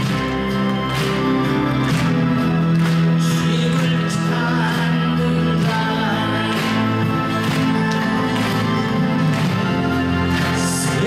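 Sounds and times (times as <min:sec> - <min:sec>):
man singing: 0:03.1 - 0:08.0, 0:10.4 - 0:11.0.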